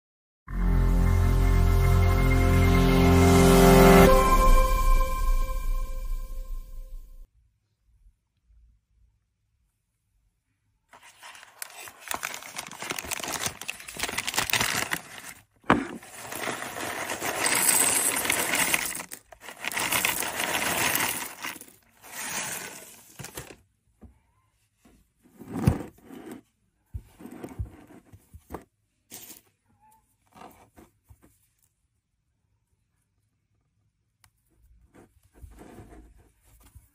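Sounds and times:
plastic bag crinkling: 11.0 - 23.6
seeds and bag rustling: 11.0 - 23.6.

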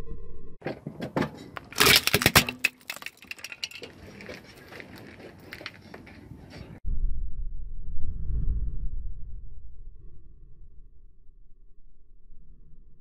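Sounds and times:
ceramic crushed under tyre: 1.6 - 4.0
breaking pieces tinkling: 1.8 - 3.8.

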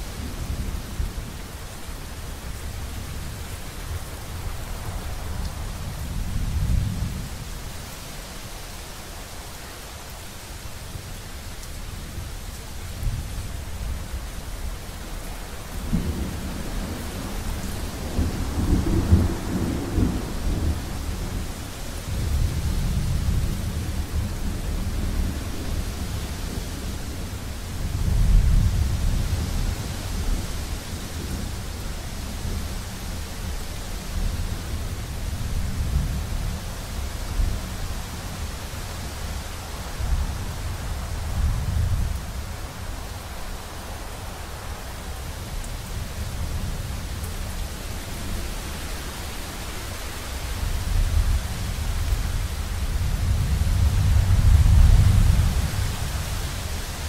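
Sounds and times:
steady rain hiss: 0.0 - 57.0
rolling thunder: 15.8 - 21.5.

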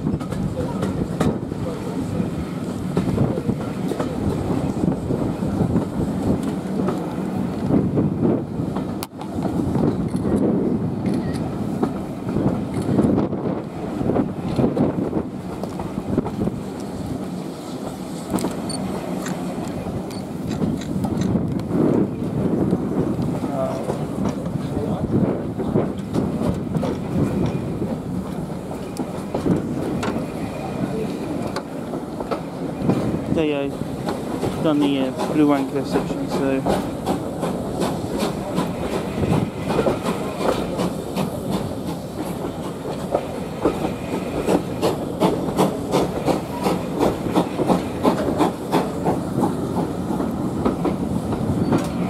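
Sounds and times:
train carriage rumbling on track: 0.0 - 52.0.

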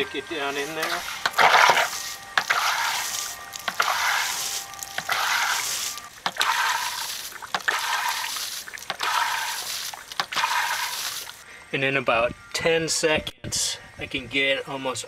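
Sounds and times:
hand pump strokes: 0.0 - 11.4
water gushing onto grass: 0.4 - 11.4
pump knocking: 0.8 - 11.3.

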